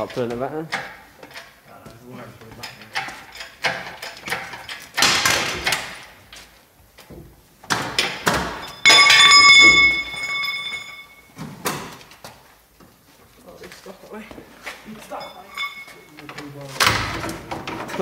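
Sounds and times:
metal clanks and scrapes: 0:02.5 - 0:06.2, 0:14.7 - 0:18.0
loud metallic clang: 0:08.0 - 0:11.2.

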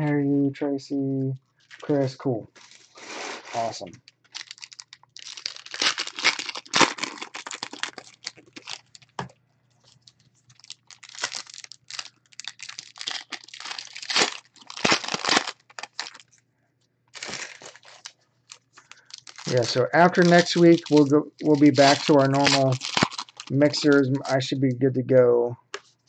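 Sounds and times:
foil wrappers crinkling and tearing: 0:03.6 - 0:09.2, 0:09.9 - 0:16.4, 0:17.1 - 0:24.4.

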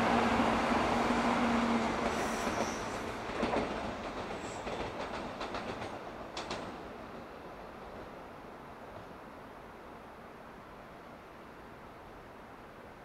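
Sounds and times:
train rushing past: 0:00.0 - 0:08.1.

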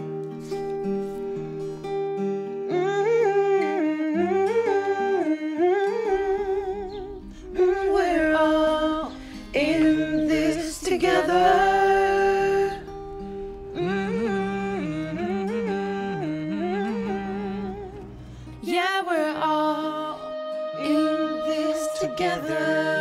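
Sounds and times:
plucked guitar: 0:00.0 - 0:23.0
wordless voice singing: 0:02.7 - 0:23.0.

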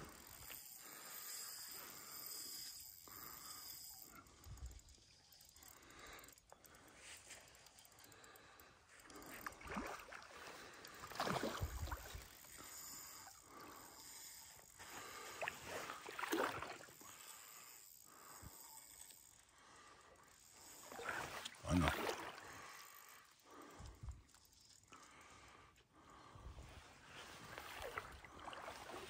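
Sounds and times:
water splashing and sloshing: 0:09.3 - 0:12.7, 0:14.9 - 0:17.3, 0:20.9 - 0:22.8, 0:26.8 - 0:29.0.

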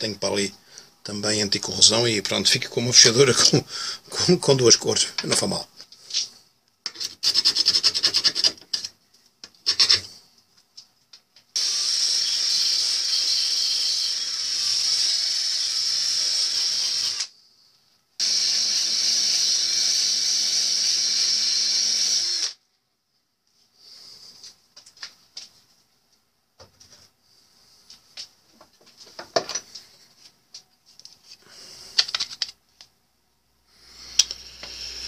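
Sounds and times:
drill driving wire brush on metal: 0:11.6 - 0:17.3, 0:34.0 - 0:35.0.

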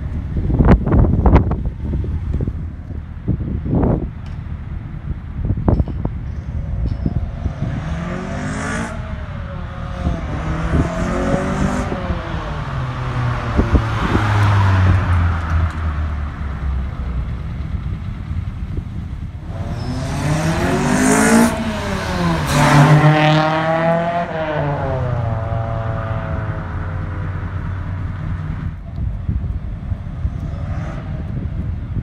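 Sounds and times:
car engine revving hard: 0:07.3 - 0:15.4, 0:19.4 - 0:27.6.

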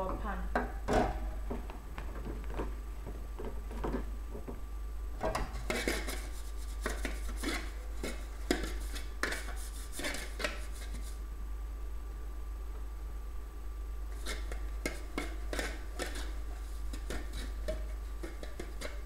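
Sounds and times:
utensil scraping inside metal pan: 0:05.4 - 0:11.2, 0:14.1 - 0:19.0.

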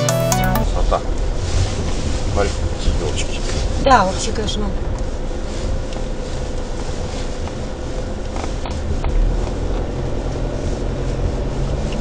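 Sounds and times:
car engine and tyres rumbling: 0:00.7 - 0:12.0.

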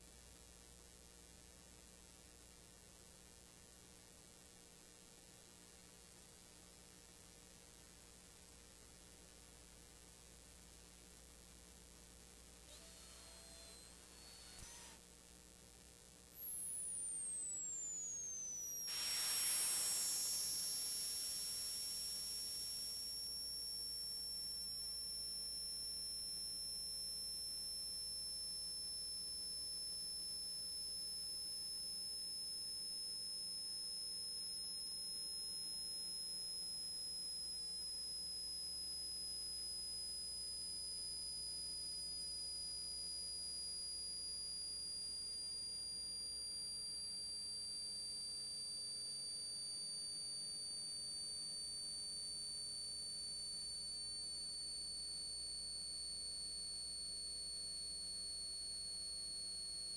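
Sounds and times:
high-pitched electronic whistle tones: 0:12.7 - 0:59.9
burst of hiss: 0:18.8 - 0:25.4.

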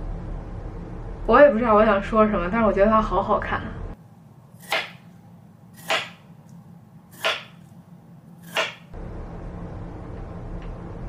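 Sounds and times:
knife slicing onto cutting board: 0:04.6 - 0:05.0, 0:05.8 - 0:06.2, 0:07.1 - 0:07.7, 0:08.4 - 0:08.9.

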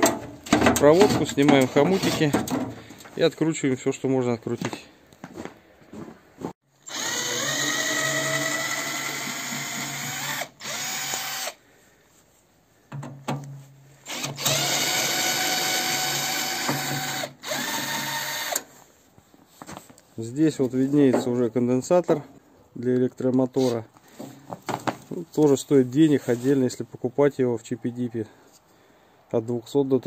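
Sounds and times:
cordless drill motor whining: 0:06.8 - 0:11.6, 0:14.1 - 0:18.7.

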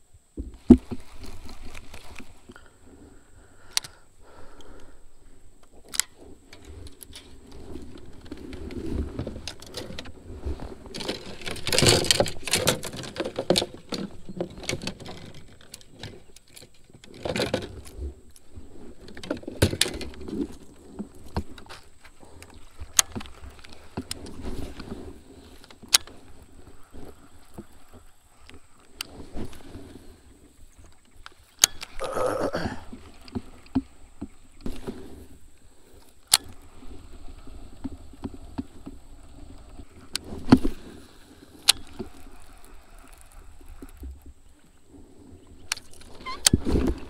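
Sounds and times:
rustling clatter: 0:05.8 - 0:44.6
fishing rods scraping kayak hull: 0:05.8 - 0:47.0.

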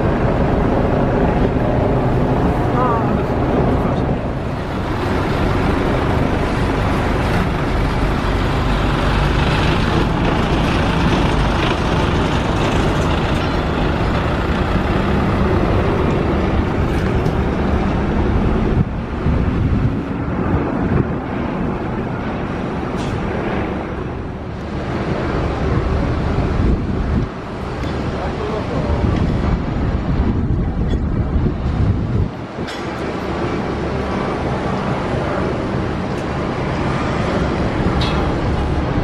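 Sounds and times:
truck engines running: 0:00.0 - 0:21.3
road traffic noise: 0:00.0 - 0:39.0.

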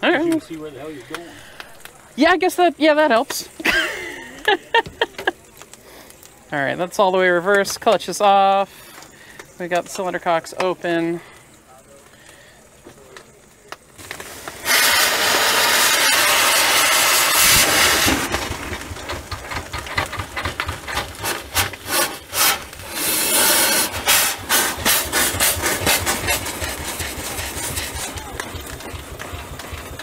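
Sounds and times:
steady steam hiss: 0:00.0 - 0:30.0
rhythmic steam engine chuffs: 0:14.5 - 0:30.0.

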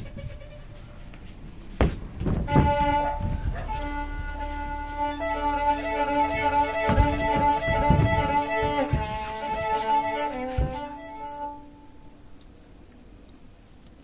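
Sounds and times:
bare feet thudding on wooden stage: 0:01.2 - 0:03.8, 0:06.2 - 0:11.0
solo violin: 0:02.4 - 0:12.4.

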